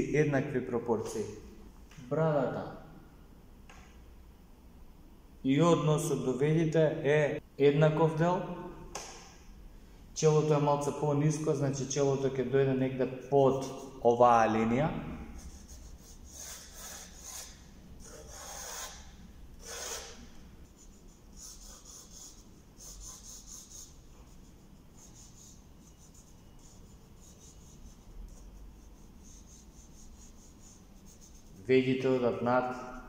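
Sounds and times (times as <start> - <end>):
pencil scratching on paper: 15.2 - 31.7.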